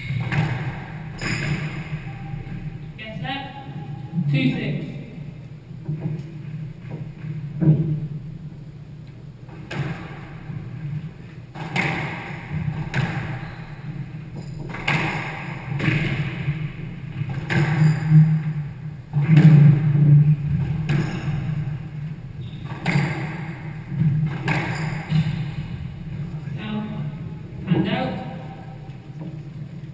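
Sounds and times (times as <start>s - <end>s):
squash ball hits: 0.0s - 2.8s, 9.5s - 10.8s, 11.5s - 26.2s.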